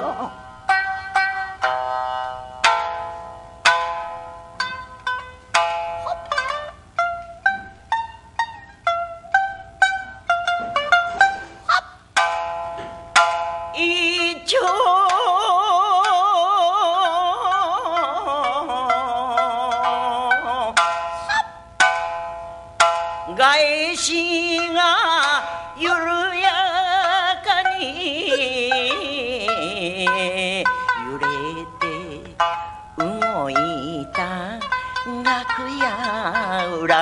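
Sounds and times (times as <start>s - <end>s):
plucked shamisen notes: 0.0s - 37.0s
woman singing with vibrato: 13.7s - 21.5s, 23.3s - 37.0s.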